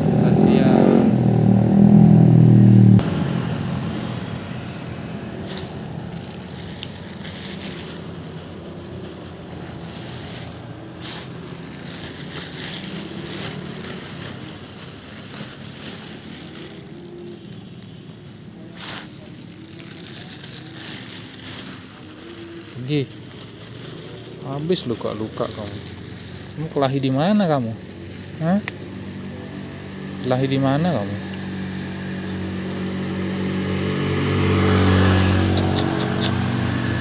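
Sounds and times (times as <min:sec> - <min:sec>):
motorcycle engine passing: 0:00.0 - 0:17.9, 0:18.7 - 0:37.0
faint low engine hum: 0:00.0 - 0:37.0
light crackles: 0:03.4 - 0:27.2.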